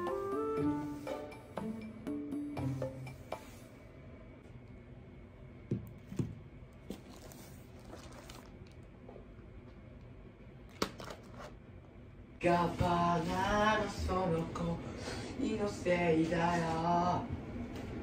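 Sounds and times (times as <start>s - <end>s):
soft handling sounds: 6.8s - 9.8s.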